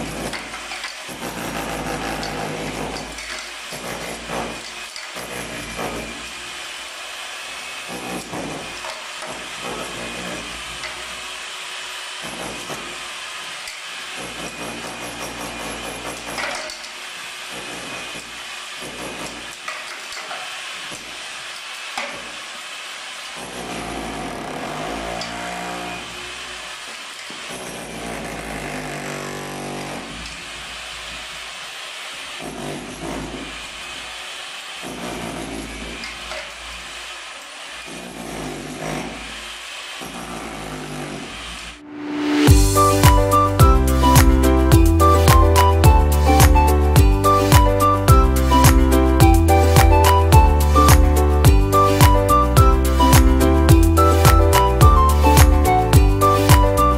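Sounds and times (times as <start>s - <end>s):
rotary hammer chiselling concrete: 0.0s - 41.8s
wavering pitched whine: 41.8s - 44.7s.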